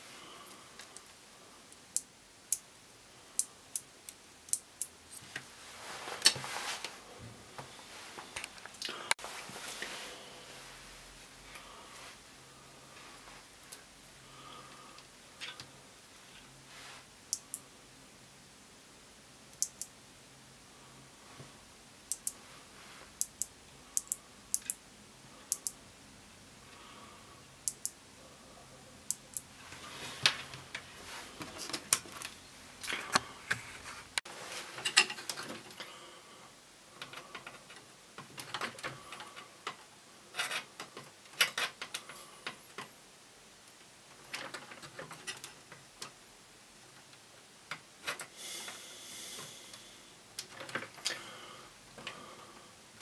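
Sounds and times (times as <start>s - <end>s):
rustling: 5.1s - 12.2s.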